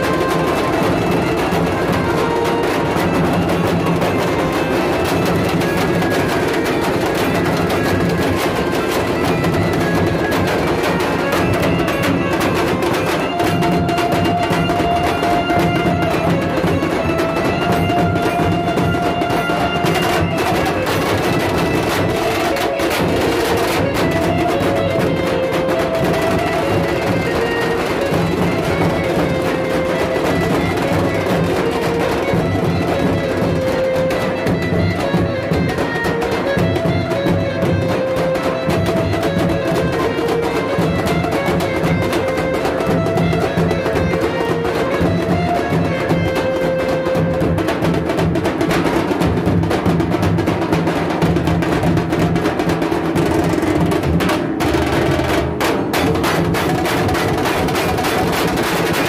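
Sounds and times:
bass drums and snare drums: 0:47.2 - 0:59.0.

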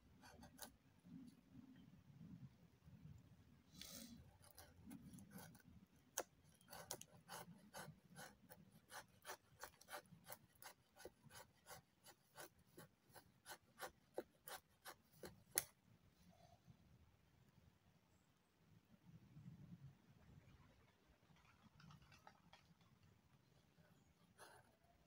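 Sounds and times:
knife scraping wood shavings: 0:03.8 - 0:15.6.

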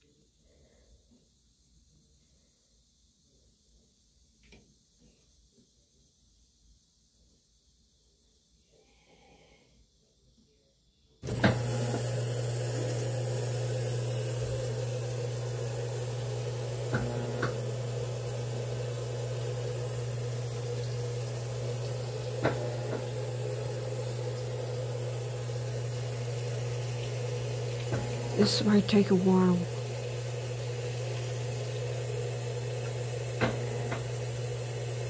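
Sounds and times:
washing machine filling with water: 0:11.2 - 0:35.0.

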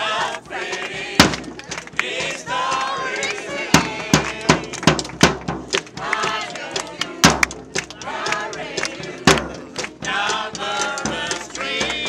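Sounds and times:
voices shouting and singing: 0:00.0 - 0:04.9, 0:05.8 - 0:12.0
crowd clapping: 0:00.0 - 0:12.0
heavy thumps: 0:01.2 - 0:02.8.

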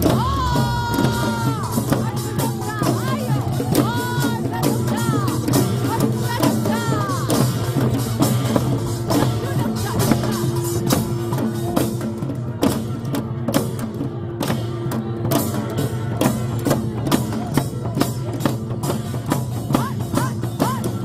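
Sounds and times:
small hand drums beaten with sticks: 0:00.0 - 0:21.0.

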